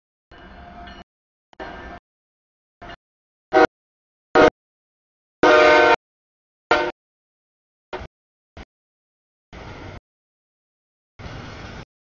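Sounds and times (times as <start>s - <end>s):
locomotive air horn blasts: 3.5s - 3.7s, 5.4s - 6.0s, 6.7s - 7.0s.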